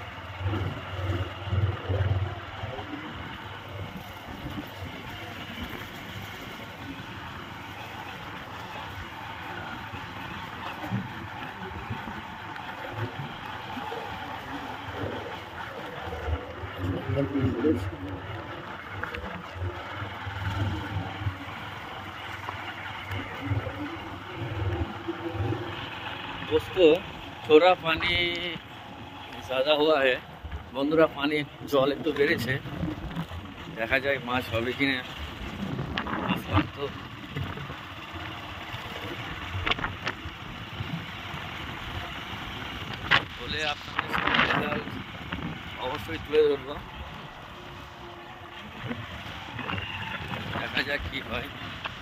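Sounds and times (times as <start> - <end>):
motorcycle engine running: 0.0 - 52.0
road noise: 0.0 - 52.0
vehicle rumble: 0.0 - 52.0
wind buffeting microphone: 30.5 - 38.2, 39.1 - 52.0.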